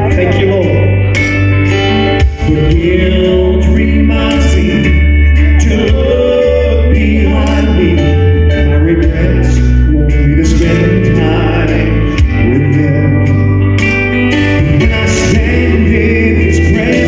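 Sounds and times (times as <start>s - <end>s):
instrumental accompaniment with bass: 0.0s - 17.0s
male vocal group singing gospel: 1.9s - 13.7s, 14.4s - 17.0s.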